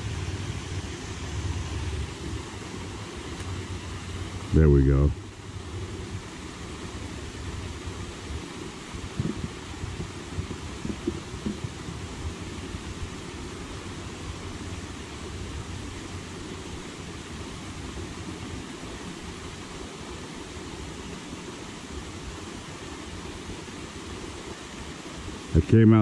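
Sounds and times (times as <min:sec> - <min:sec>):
wind rumble on microphone: 0:00.0 - 0:19.4
even hiss: 0:00.0 - 0:26.0.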